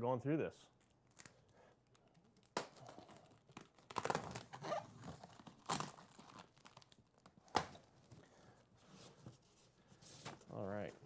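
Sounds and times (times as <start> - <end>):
packing tape peeling and tearing: 1.0 - 8.2.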